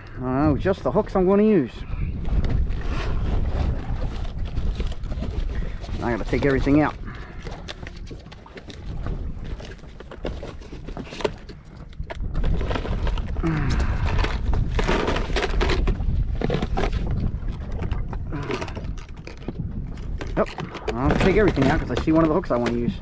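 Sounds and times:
wind rumble on microphone: 0.0s - 23.0s
plastic boxes clicking and clattering: 20.3s - 23.0s.

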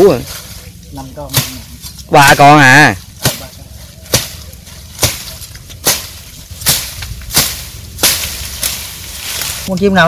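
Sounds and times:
blade chopping: 1.3s - 2.3s, 3.0s - 9.6s.

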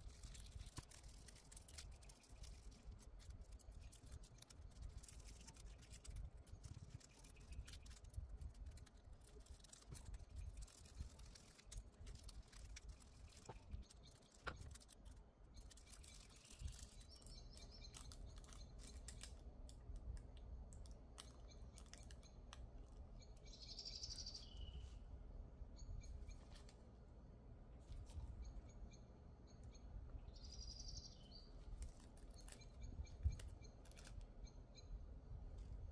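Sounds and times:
bird chirp: 0.0s - 19.4s, 21.2s - 26.7s, 27.9s - 35.1s
fingers rustling and clicking: 0.0s - 23.4s, 31.5s - 34.6s.

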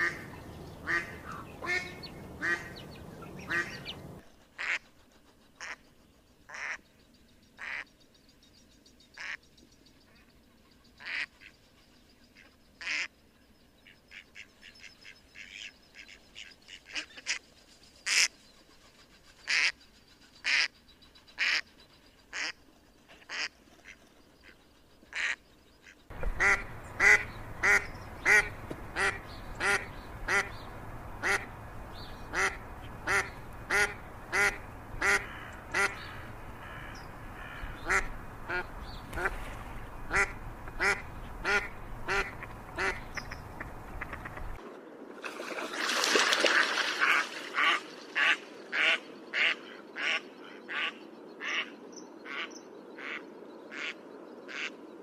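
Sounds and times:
ducks quacking: 0.0s - 5.0s, 5.6s - 5.8s, 23.2s - 44.6s, 46.5s - 51.7s, 52.3s - 54.8s.

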